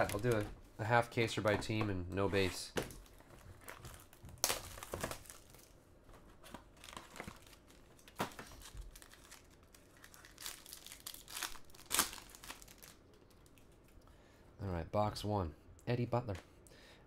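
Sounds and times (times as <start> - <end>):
foil card pack crinkling and tearing: 0.0 - 0.4, 3.0 - 5.8, 6.5 - 13.6.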